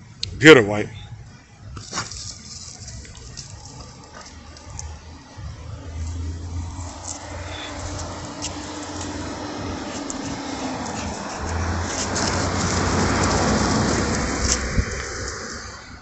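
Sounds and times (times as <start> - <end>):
car passing by: 3.5 - 16.0.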